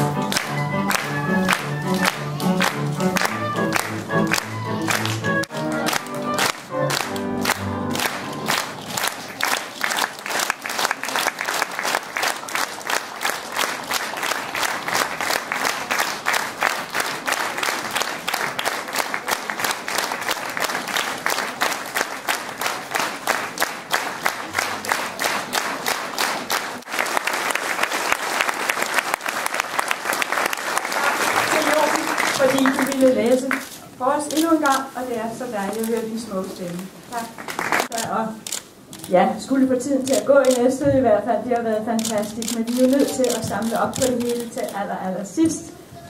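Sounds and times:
music: 0:00.0 - 0:08.9
audience clapping in rhythm: 0:00.0 - 0:33.7, 0:37.1 - 0:38.6.

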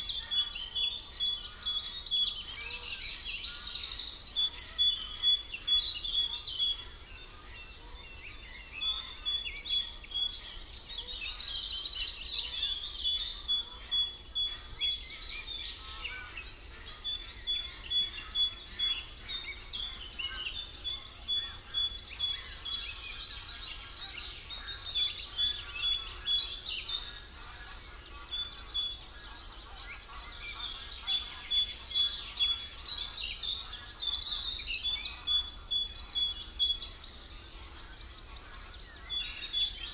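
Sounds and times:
songbirds singing: 0:00.0 - 0:39.9.

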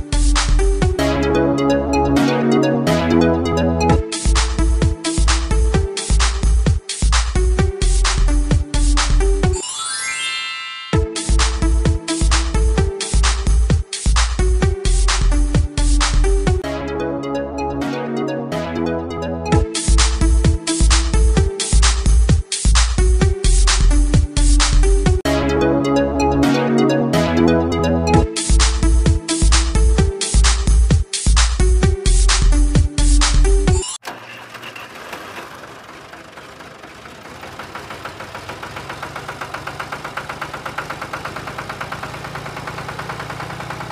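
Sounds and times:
electronic dance music: 0:17.2 - 0:21.0, 0:24.6 - 0:31.5
tractor engine running: 0:34.0 - 0:43.9.

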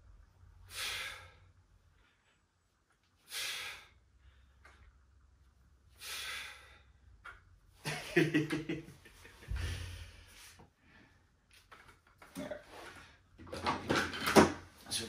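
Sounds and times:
man exhaling forcefully: 0:00.7 - 0:01.5, 0:03.3 - 0:04.0, 0:06.0 - 0:06.9, 0:09.5 - 0:10.3.

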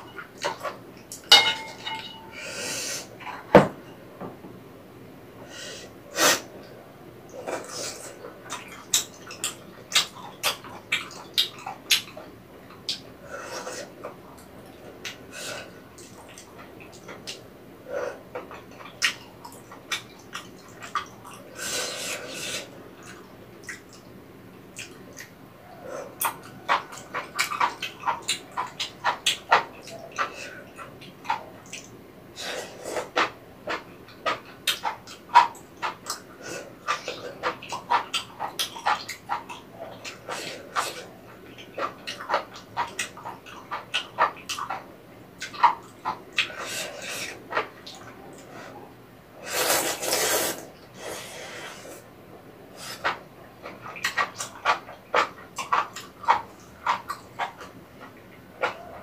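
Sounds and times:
slurping and chewing: 0:07.3 - 0:24.1, 0:24.7 - 0:59.0
slurping: 0:49.4 - 0:52.1.

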